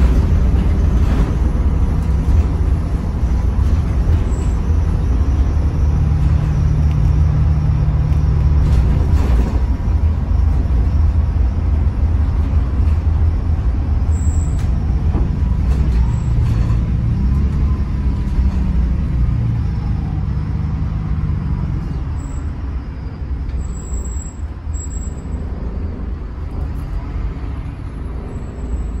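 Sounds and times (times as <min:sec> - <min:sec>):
bus diesel engine rumble: 0:00.0 - 0:29.0
road noise: 0:00.0 - 0:29.0.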